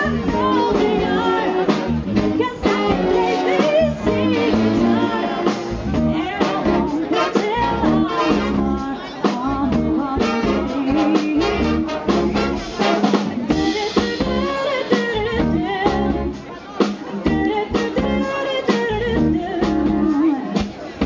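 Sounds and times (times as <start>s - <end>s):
woman singing: 0.0s - 11.9s, 13.4s - 16.4s, 17.2s - 20.7s
big band playing: 0.0s - 21.0s
drum kit: 0.0s - 21.0s
trombones: 0.1s - 8.9s, 9.6s - 14.6s
trumpets: 1.0s - 5.6s, 6.4s - 8.8s, 10.2s - 13.4s.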